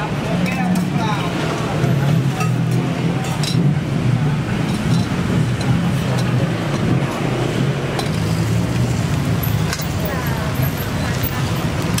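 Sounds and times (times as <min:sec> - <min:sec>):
motorbike and traffic engines hum: 0:00.0 - 0:12.0
metal utensils clinking: 0:02.4 - 0:03.7, 0:04.6 - 0:06.9.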